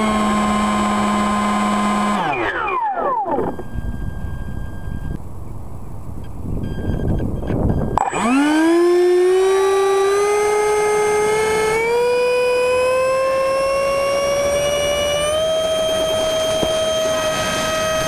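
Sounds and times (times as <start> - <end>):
electric ducted fan whine: 0.0 - 18.0
low rumbling noise: 3.3 - 9.4.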